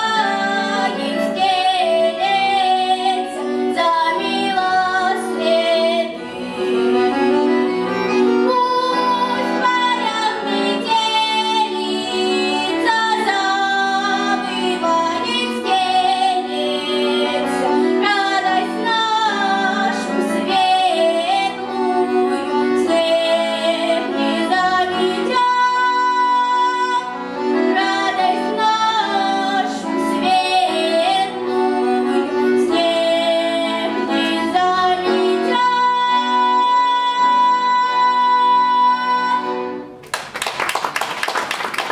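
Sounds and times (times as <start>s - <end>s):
girl singing folk song: 0.0s - 6.2s, 8.1s - 39.6s
button accordion chords: 0.0s - 40.0s.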